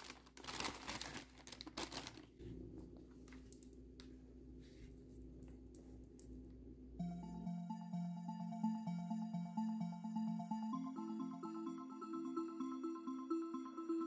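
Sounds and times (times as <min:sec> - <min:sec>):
plastic packet crinkling: 0:00.0 - 0:02.4.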